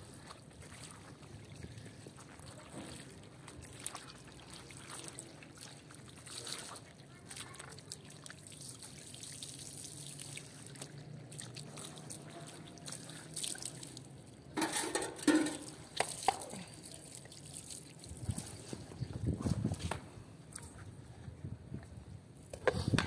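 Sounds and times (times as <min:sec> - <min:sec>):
water dripping on stone floor: 0:01.5 - 0:18.6
knocks and splashes: 0:10.4 - 0:16.9.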